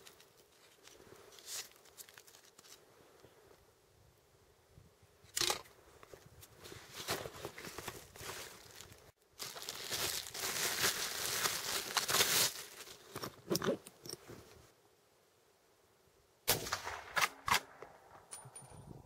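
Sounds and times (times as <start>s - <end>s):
packed snow crunching: 6.6s - 13.1s
plastic bag crinkling: 7.4s - 13.1s.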